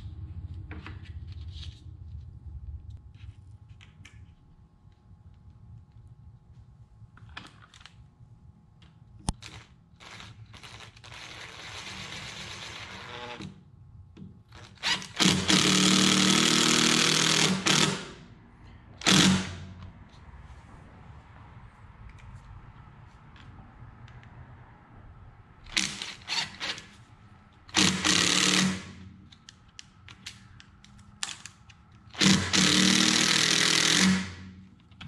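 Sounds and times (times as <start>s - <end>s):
drill driving screws into wood: 10.0s - 13.6s, 14.6s - 18.2s, 19.0s - 19.7s, 25.7s - 26.9s, 27.7s - 29.0s, 32.1s - 34.6s.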